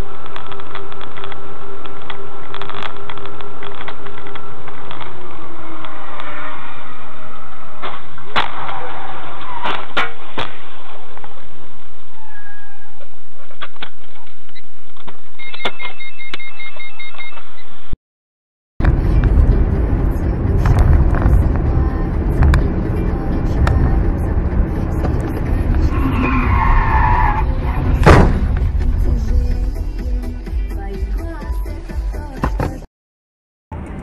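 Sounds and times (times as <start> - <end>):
car interior road noise: 18.8 - 30.9.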